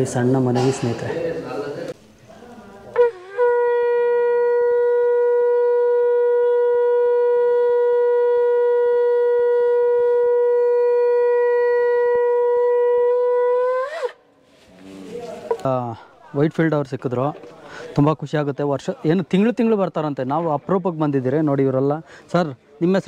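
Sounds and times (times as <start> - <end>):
conch shell blown: 2.9 - 14.3.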